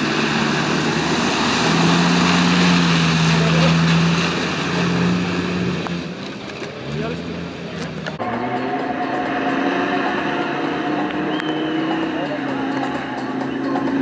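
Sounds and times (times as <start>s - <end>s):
mud and water spray rushing: 0.0s - 8.2s
off-road engine revving hard: 0.0s - 14.0s.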